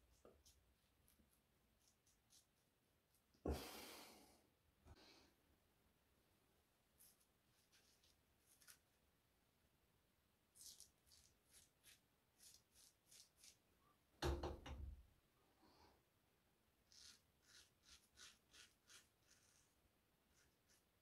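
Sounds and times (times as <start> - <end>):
razor scraping stubble: 7.6 - 8.8, 10.6 - 13.6, 16.9 - 20.9.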